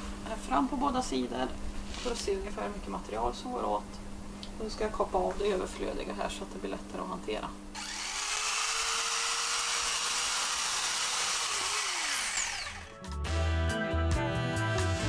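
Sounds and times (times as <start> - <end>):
electric cutter slicing foam: 7.8 - 13.0
music with steady beat: 12.9 - 15.0.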